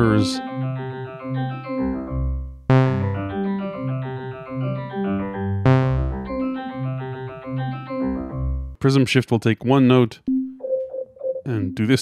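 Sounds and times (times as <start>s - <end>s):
synthesizer arpeggio: 0.0s - 8.8s.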